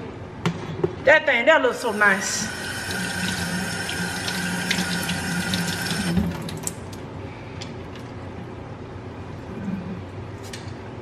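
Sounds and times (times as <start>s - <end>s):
tap running into sink: 2.9s - 6.7s.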